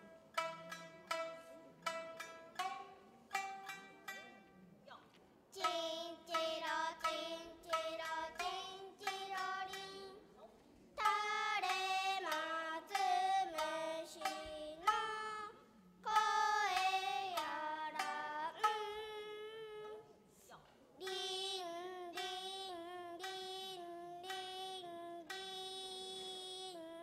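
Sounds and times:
plucked shamisen: 0.0s - 4.9s, 5.6s - 20.2s, 21.0s - 27.0s
girls singing long held notes: 5.6s - 10.2s, 11.0s - 20.1s.

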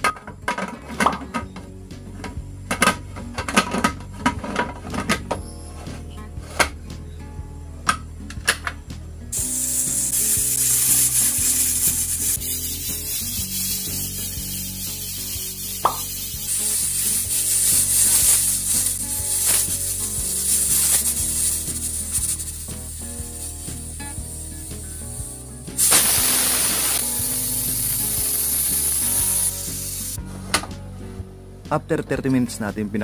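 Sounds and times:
pressure cooker hissing: 9.4s - 30.2s.

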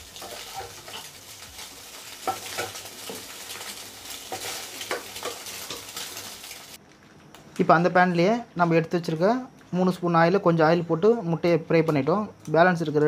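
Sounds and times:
eggs sizzling in a frying pan: 0.0s - 6.8s.

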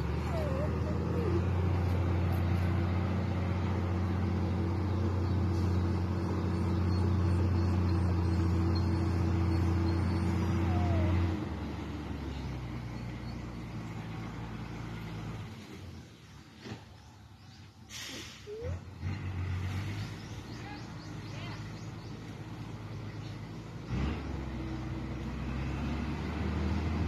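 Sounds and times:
truck diesel engine running: 0.0s - 16.4s.

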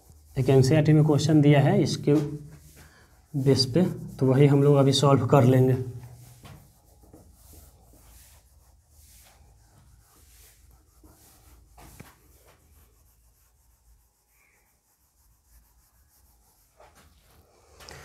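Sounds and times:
eraser rubbing on whiteboard: 0.0s - 18.0s.

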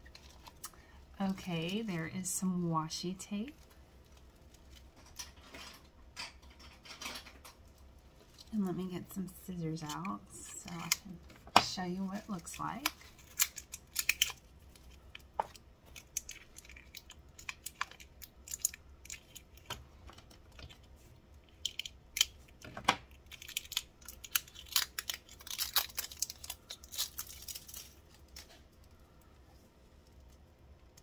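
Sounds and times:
tape being peeled: 9.8s - 31.0s.

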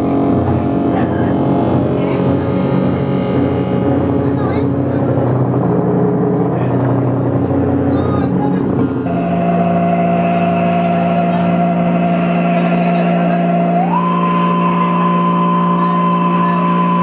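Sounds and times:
low drone: 0.0s - 17.0s
higher electronic tone: 9.0s - 17.0s
buzzing held tones: 9.1s - 17.0s.

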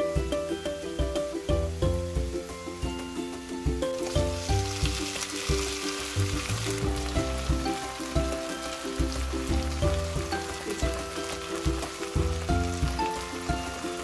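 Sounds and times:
background music with bass beat: 0.0s - 14.0s
food sizzling in oil: 4.0s - 14.0s.

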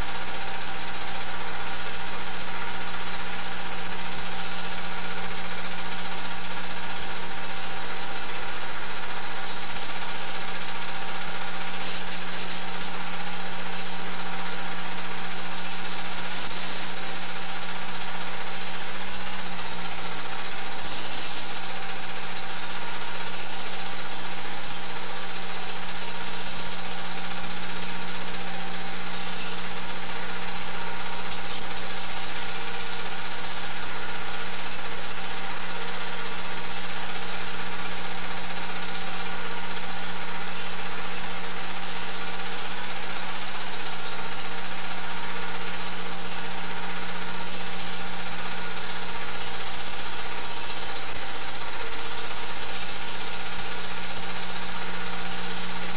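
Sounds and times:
film projector motor whirring: 0.0s - 55.9s.

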